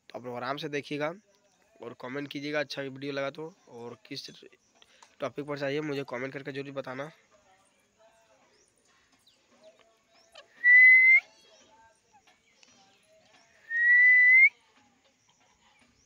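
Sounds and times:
parakeet whistling: 0:10.4 - 0:11.4, 0:13.7 - 0:14.5.

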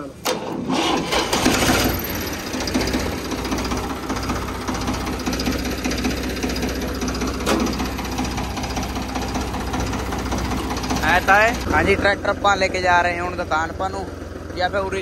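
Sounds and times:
diesel tractor engine idling: 0:00.0 - 0:15.0.

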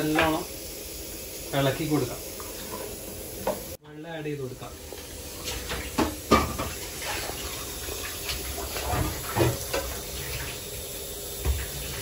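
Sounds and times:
water pouring into pot: 0:04.7 - 0:12.0.

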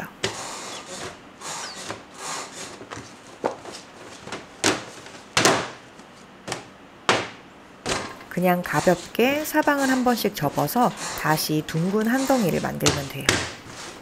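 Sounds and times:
dough rustling: 0:00.0 - 0:14.0
dough thumping against tub: 0:04.3 - 0:05.8, 0:06.4 - 0:08.2, 0:12.7 - 0:13.7.

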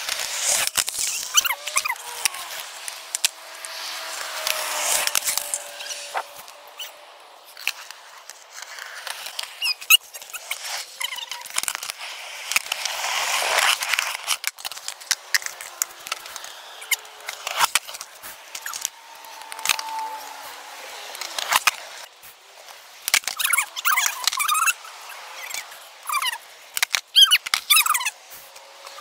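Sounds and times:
skateboard wheels rolling on concrete: 0:00.0 - 0:29.0.

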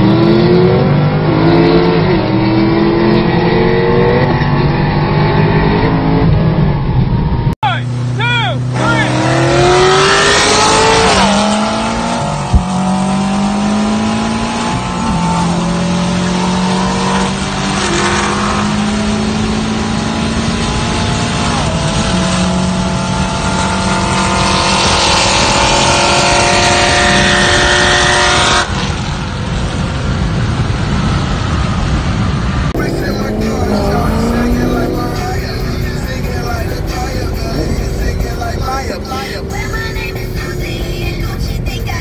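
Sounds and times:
car engine accelerating hard: 0:00.0 - 0:42.0.

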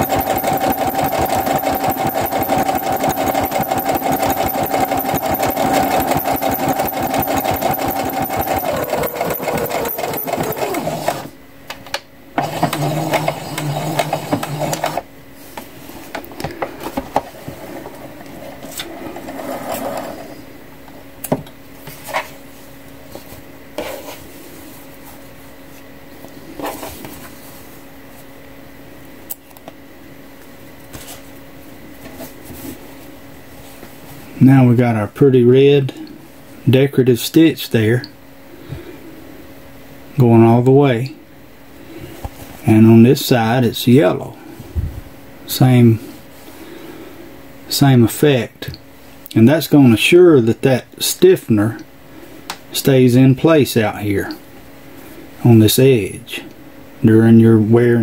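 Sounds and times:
sewing machine stitching: 0:00.0 - 0:11.4, 0:12.4 - 0:15.1.

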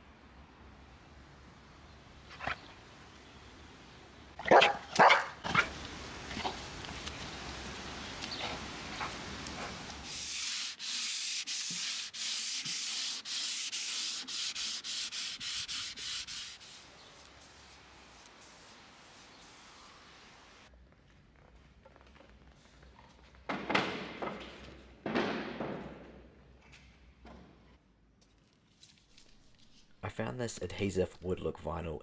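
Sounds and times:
dog barking: 0:04.4 - 0:05.7
sanding block rubbing wood: 0:09.6 - 0:20.1.

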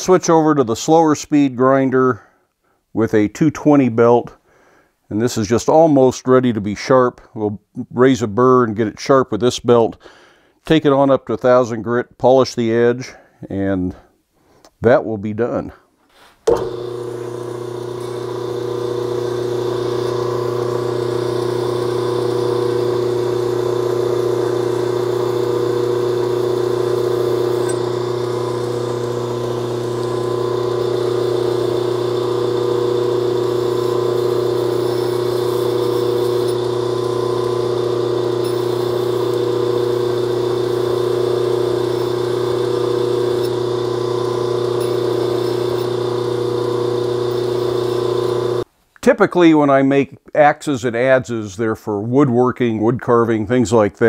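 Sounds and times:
belt grinder grinding steel: 0:16.5 - 0:48.6.

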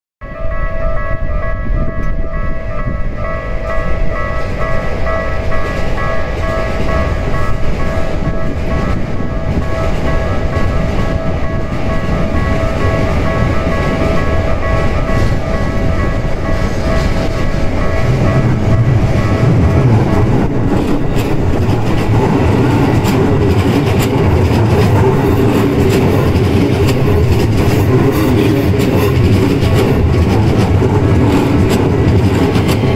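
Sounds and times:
electric train passing: 0:00.2 - 0:32.9
level crossing warning bell ringing: 0:00.2 - 0:32.9
low rumble: 0:00.6 - 0:32.9
scattered clicks: 0:18.3 - 0:32.9.

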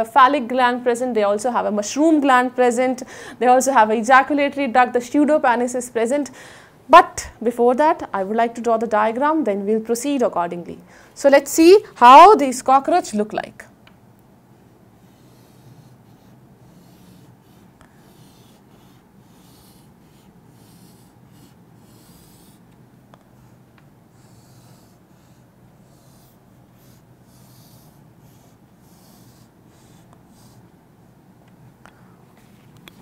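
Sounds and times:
low room hum: 0:00.0 - 0:33.0
chalk scratching on chalkboard: 0:15.0 - 0:22.6, 0:23.4 - 0:30.7.

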